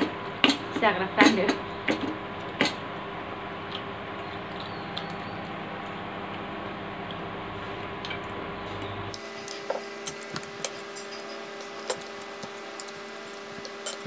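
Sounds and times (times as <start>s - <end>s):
background hum: 0.0s - 14.0s
cutlery clicking and scraping plate: 9.4s - 14.0s.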